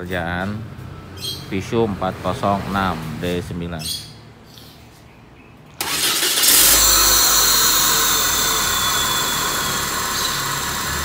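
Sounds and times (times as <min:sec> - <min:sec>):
car engine starting and idling: 0:05.8 - 0:11.0.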